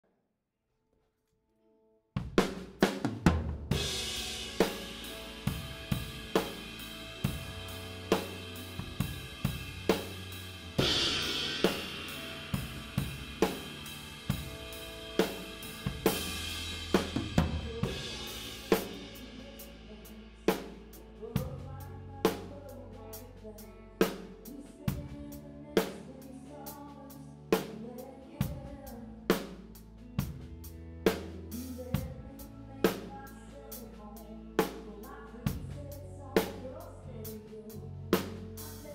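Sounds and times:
drum kit playing: 2.2s - 22.7s, 28.4s - 33.3s, 38.1s - 38.9s
bass: 2.2s - 38.9s
cymbal crashes: 3.7s - 19.9s
band playing slow ballad: 3.7s - 38.9s.

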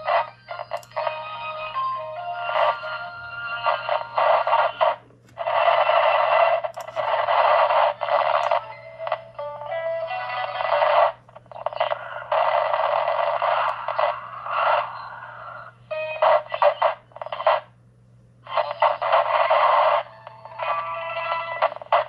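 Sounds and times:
radio stations with whistling tones: 0.0s - 9.2s, 10.4s - 17.8s, 18.4s - 22.0s
faint low hum: 0.0s - 22.0s
radio static bursts: 2.5s - 9.2s, 10.4s - 17.7s, 18.4s - 22.0s.

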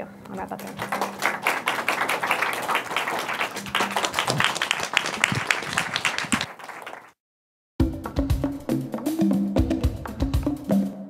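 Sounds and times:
audience applauding: 0.6s - 7.2s.

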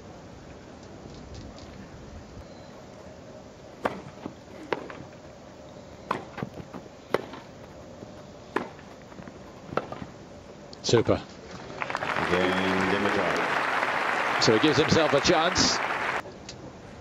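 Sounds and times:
low background noise: 0.0s - 17.0s
racket hitting tennis ball: 3.8s - 5.0s, 7.1s - 7.5s, 8.5s - 9.0s.

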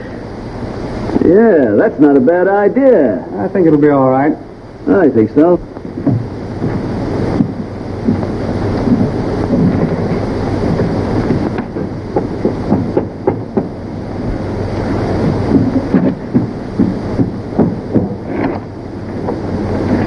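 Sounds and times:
old film soundtrack hiss: 0.0s - 20.0s
knuckles knocking on wooden door: 11.6s - 13.8s.

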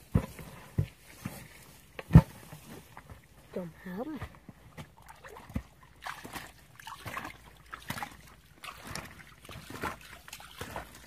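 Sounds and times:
hands splashing in muddy water: 4.7s - 11.0s.

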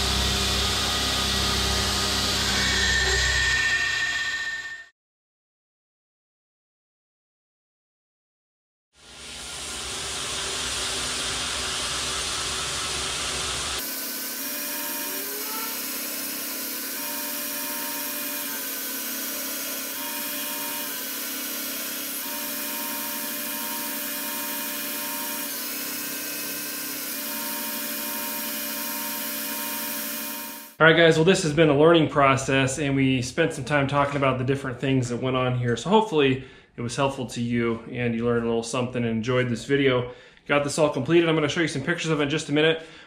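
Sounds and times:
motor hum: 0.0s - 2.8s, 9.0s - 30.8s
belt grinder grinding knife blade: 13.8s - 30.8s.

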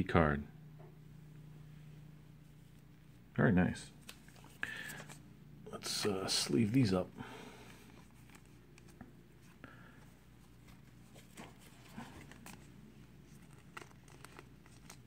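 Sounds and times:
cards rustling into plastic sleeves: 3.9s - 15.0s.

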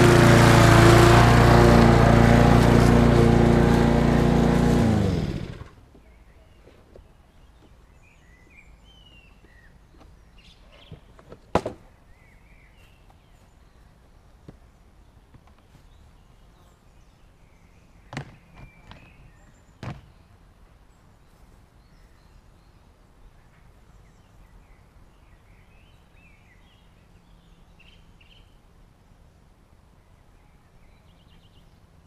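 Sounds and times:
birds chirping: 11.9s - 28.6s.

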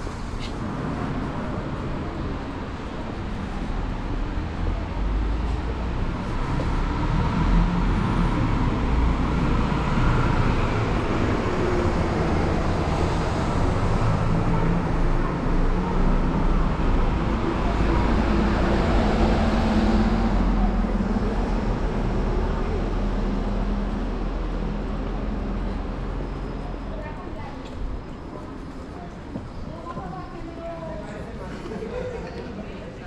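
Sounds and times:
street traffic rumble: 0.0s - 33.0s.

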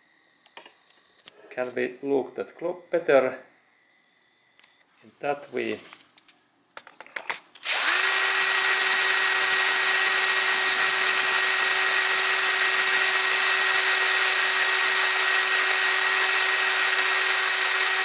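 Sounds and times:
electric drill whining: 7.6s - 18.0s.

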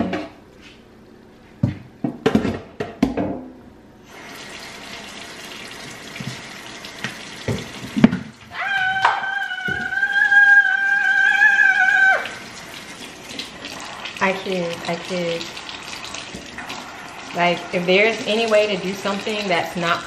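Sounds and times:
kitchen tap running into sink: 4.1s - 8.5s, 12.1s - 20.0s.

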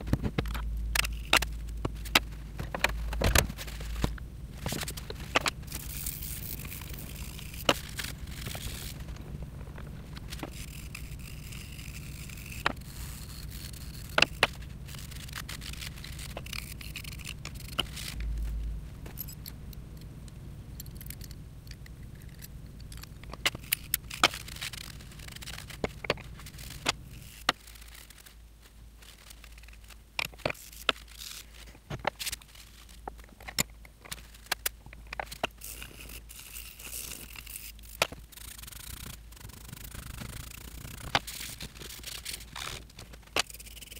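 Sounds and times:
rag scraping: 1.0s - 19.4s, 22.2s - 33.2s, 34.1s - 43.9s
metal parts clicking and tapping: 10.1s - 20.1s, 20.8s - 28.4s, 29.0s - 43.9s.

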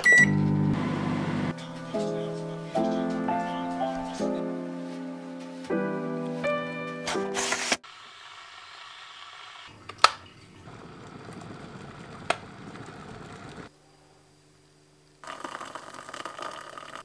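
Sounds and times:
kettle water boiling: 7.8s - 13.7s, 15.2s - 17.0s
kettle clicks: 9.8s - 10.2s.

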